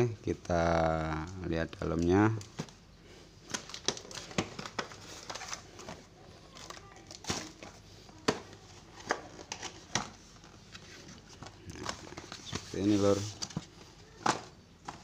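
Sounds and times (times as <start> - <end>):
cardboard rustling and scraping: 3.7 - 15.0.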